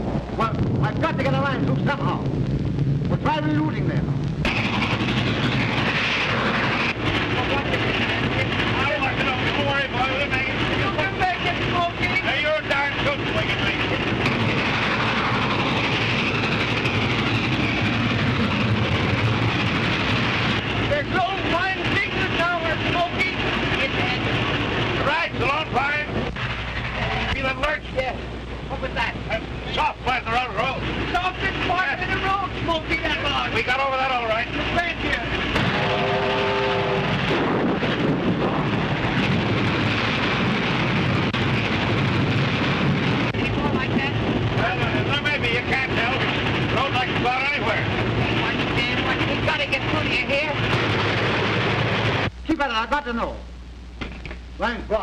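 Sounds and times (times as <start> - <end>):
train rumbling at speed: 0.0 - 53.4
rain and wind rushing: 0.0 - 55.0.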